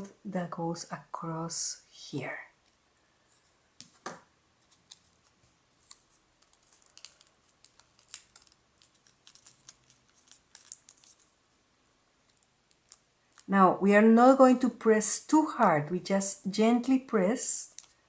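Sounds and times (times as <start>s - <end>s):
paper crinkling: 4.6s - 11.6s, 12.2s - 13.5s, 17.6s - 18.0s.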